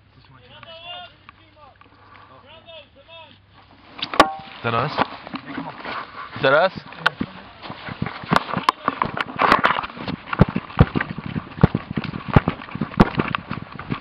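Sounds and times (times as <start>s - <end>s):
running footsteps on grass: 4.4s - 14.0s.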